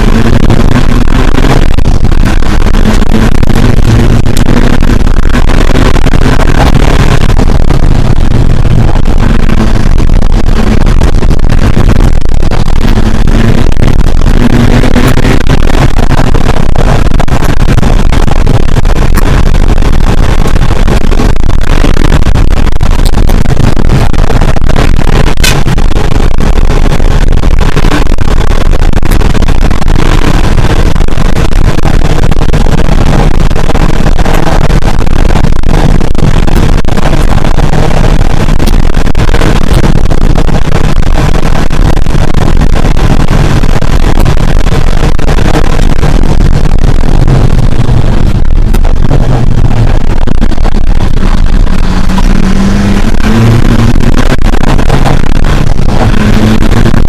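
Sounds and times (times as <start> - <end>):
rally car engine at full load: 0.0 - 57.0.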